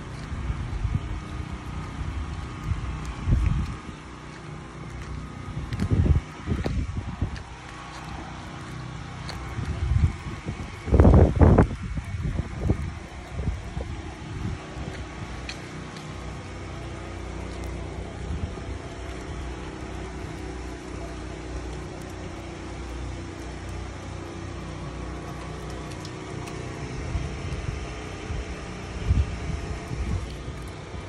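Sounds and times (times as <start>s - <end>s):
strong wind blowing: 0.0s - 4.2s, 5.4s - 8.6s, 9.3s - 15.5s, 26.6s - 31.0s
wind buffeting microphone: 0.0s - 31.0s.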